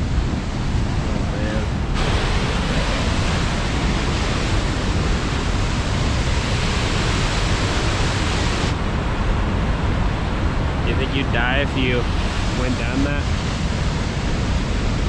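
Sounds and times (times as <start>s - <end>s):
waterfall rushing: 1.4s - 8.7s.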